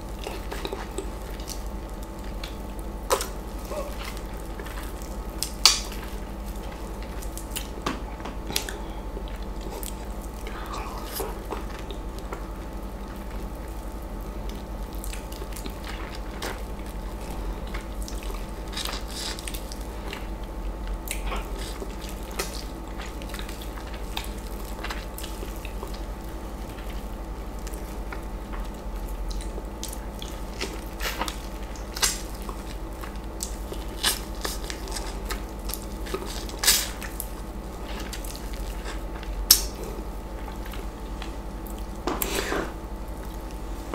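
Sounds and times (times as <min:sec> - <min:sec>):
wet biting and chewing: 0:00.1 - 0:13.4, 0:14.4 - 0:27.0, 0:27.6 - 0:43.9.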